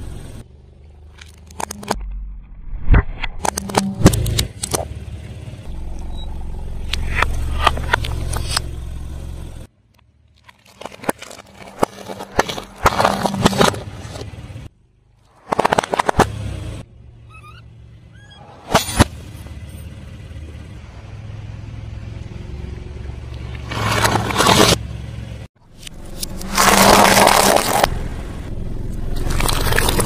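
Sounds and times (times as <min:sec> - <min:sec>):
low engine hum: 0:00.0 - 0:15.4, 0:16.0 - 0:30.0
tyre crushing objects on wet pavement: 0:10.4 - 0:14.6, 0:23.6 - 0:24.8, 0:26.3 - 0:27.9.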